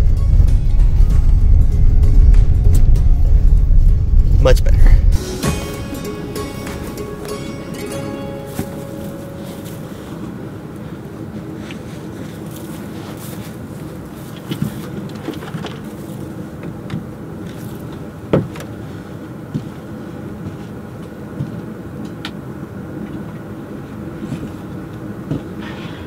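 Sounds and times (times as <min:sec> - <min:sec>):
van engine and road noise: 0:00.0 - 0:26.0.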